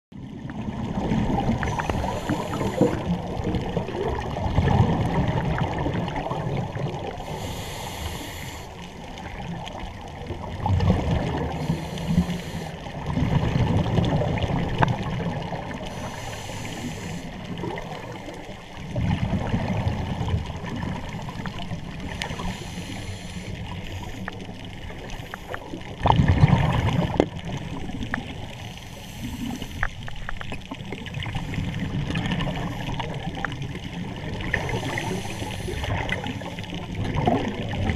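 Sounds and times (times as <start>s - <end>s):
exhaled bubbles underwater: 0.1s - 37.9s
regulator hiss on inhale: 1.8s - 3.1s, 7.2s - 9.0s, 11.6s - 12.9s, 15.8s - 18.5s, 22.0s - 25.7s, 28.6s - 30.3s, 34.5s - 36.7s.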